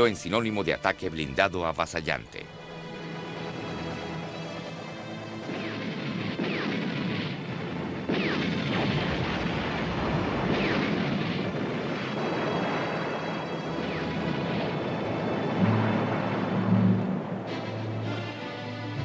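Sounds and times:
explosions: 0:05.4 - 0:18.0.

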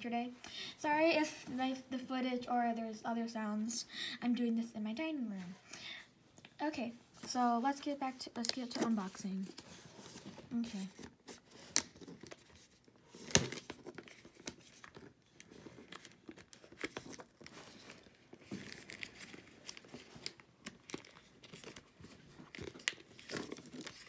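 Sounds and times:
plastic shrink wrap crackling: 0:10.5 - 0:24.0.

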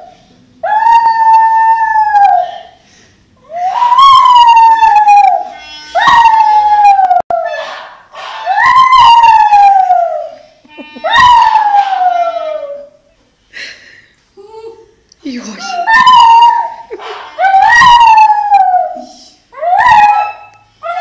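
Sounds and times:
dog howling: 0:03.6 - 0:07.8, 0:08.4 - 0:10.3, 0:11.0 - 0:13.0, 0:15.7 - 0:16.8, 0:17.4 - 0:21.0.

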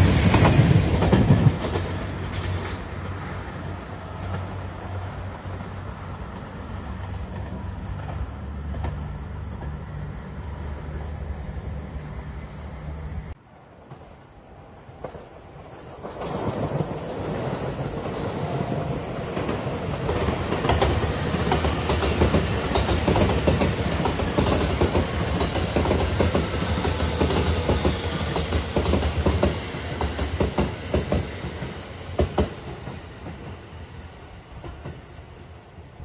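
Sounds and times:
electric train passing: 0:00.0 - 0:36.0.

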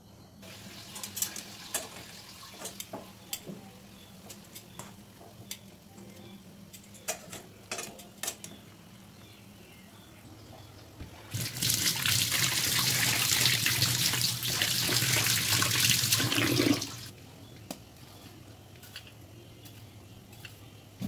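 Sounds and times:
chicken sizzling: 0:00.4 - 0:03.5, 0:11.3 - 0:17.1.

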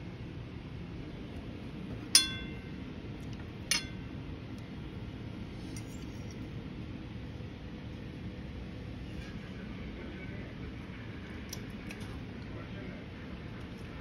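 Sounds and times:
low background hum: 0:00.0 - 0:14.0
dishware clinking: 0:02.2 - 0:02.7, 0:03.7 - 0:04.0.

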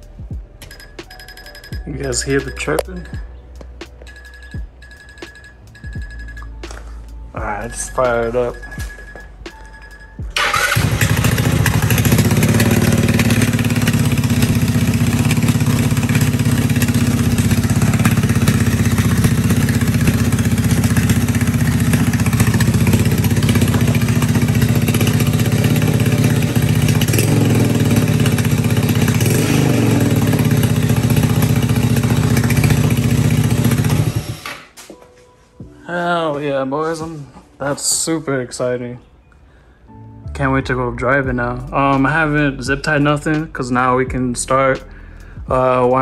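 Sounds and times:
scooter engine running: 0:10.4 - 0:34.5.

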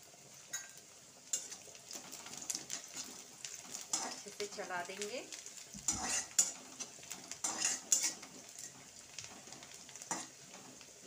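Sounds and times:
onion frying in oil: 0:00.0 - 0:11.0
spatula scraping metal pan: 0:05.8 - 0:08.8.

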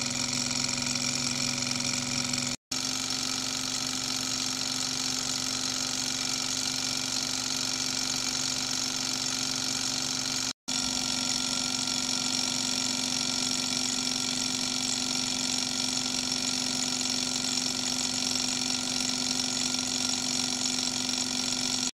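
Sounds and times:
small engine mechanical whir: 0:00.0 - 0:21.9.

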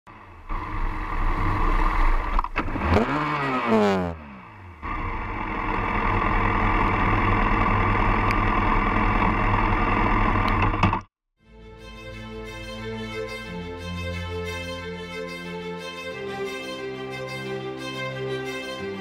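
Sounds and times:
road and wind noise: 0:00.1 - 0:11.1
motorcycle engine running: 0:00.5 - 0:10.8.

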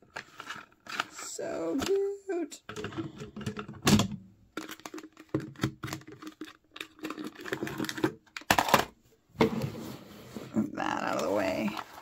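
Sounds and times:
plastic crackle: 0:04.5 - 0:08.9
plastic packaging clicks and crinkles: 0:04.5 - 0:09.0.

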